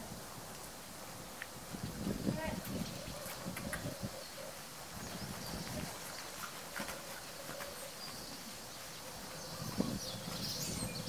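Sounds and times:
horse hoofbeats on sand: 0:05.0 - 0:11.0.

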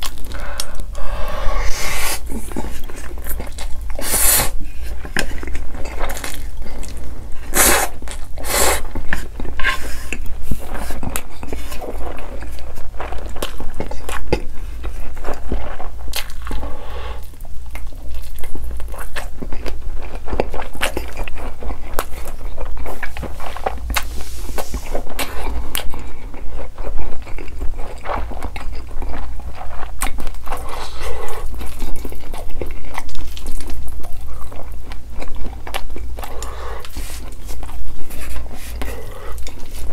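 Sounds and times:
chewing: 0:00.0 - 0:39.9
slurping noodles: 0:00.3 - 0:04.9, 0:07.4 - 0:10.2.

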